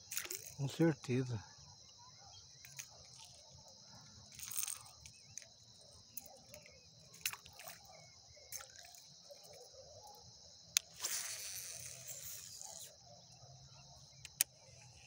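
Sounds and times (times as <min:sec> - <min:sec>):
insects chirring: 0:00.0 - 0:15.0
sharp clicks: 0:14.2 - 0:14.6.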